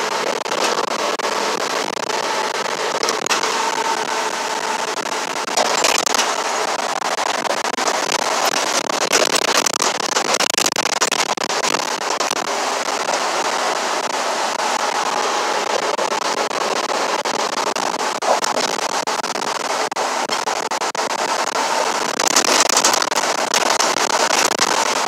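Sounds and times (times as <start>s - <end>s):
small crackles and clicks: 0.0s - 25.0s.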